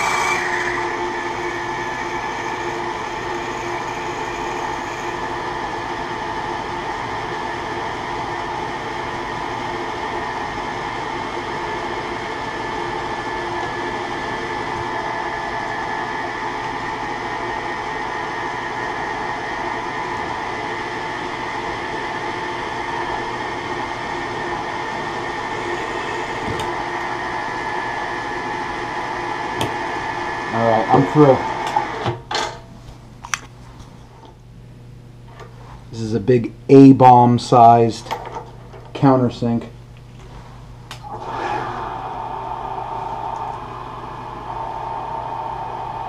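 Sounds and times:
milling machine drilling: 0.0 - 7.0, 23.9 - 28.6, 41.0 - 46.0.

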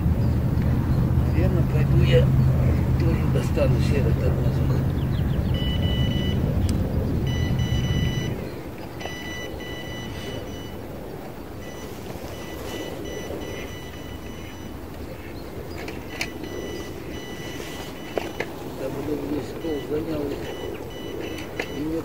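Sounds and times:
low engine hum: 0.0 - 22.0
electronic beeping tones: 5.5 - 6.6, 7.2 - 10.9, 11.6 - 15.3, 15.9 - 22.0.

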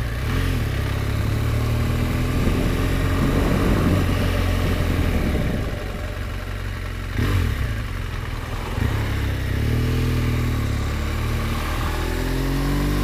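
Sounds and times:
motorcycle engine revving: 0.0 - 13.0
wind noise: 2.0 - 7.3.

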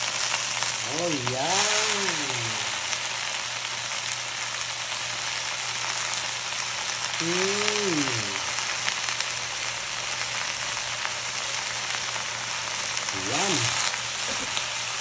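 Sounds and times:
vegetables sizzling in wok: 0.0 - 15.0.

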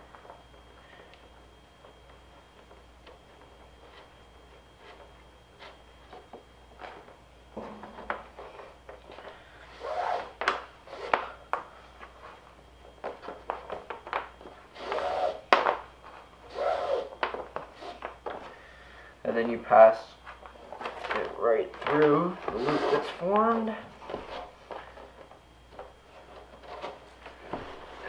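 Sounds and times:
rope sliding and rubbing: 9.7 - 11.3, 14.7 - 15.5, 16.5 - 17.2, 22.4 - 23.3.

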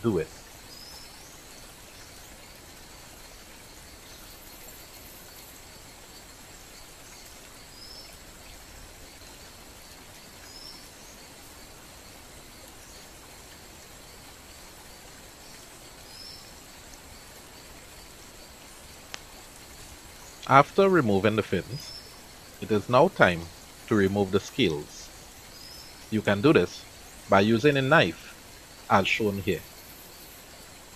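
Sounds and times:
faint high bird-like chirp: 0.0 - 2.3, 10.4 - 11.3, 15.5 - 16.6
outdoor background hiss: 0.0 - 30.9.

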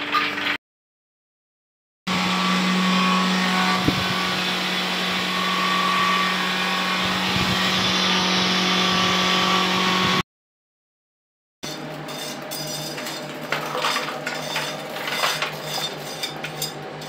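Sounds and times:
electric blower fan humming: 2.1 - 10.2.

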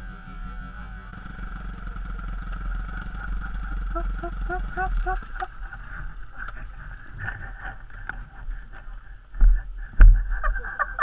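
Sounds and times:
motorcycle engine cutting out: 0.0 - 8.0.

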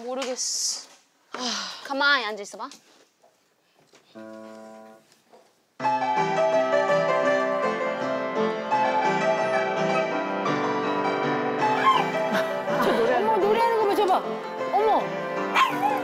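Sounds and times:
upright piano lively tune: 5.8 - 16.0.

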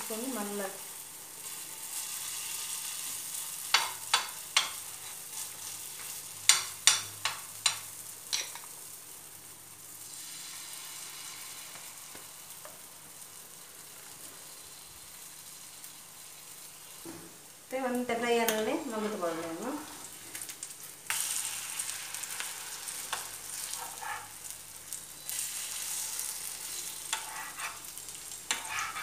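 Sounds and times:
oil sizzling in a frying pan: 0.0 - 29.0.

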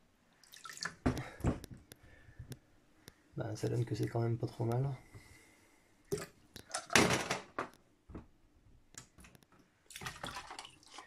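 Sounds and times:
water spilling: 0.4 - 1.0, 9.9 - 11.0.

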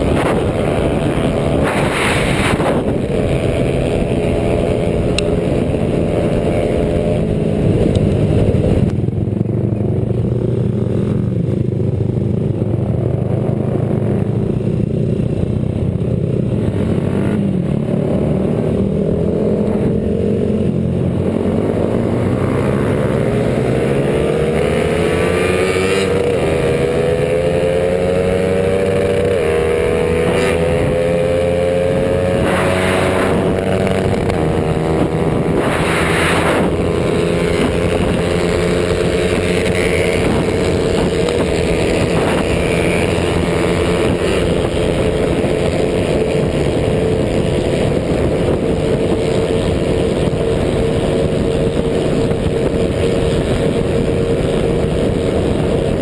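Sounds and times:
small motorcycle engine revving: 0.0 - 56.0
wind and road rush: 0.0 - 56.0.

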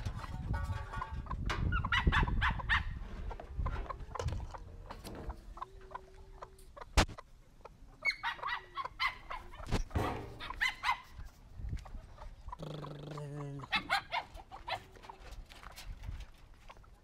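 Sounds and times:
chickens clucking: 0.0 - 17.0.

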